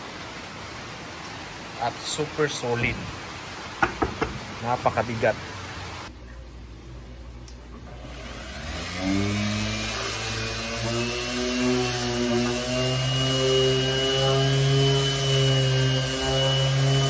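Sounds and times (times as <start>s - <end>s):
orbital sander on plywood: 8.0s - 17.0s.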